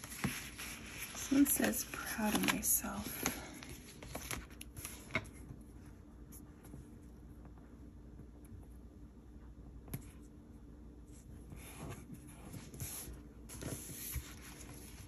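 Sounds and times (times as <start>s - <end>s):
paper pages rustling: 0.0s - 5.6s.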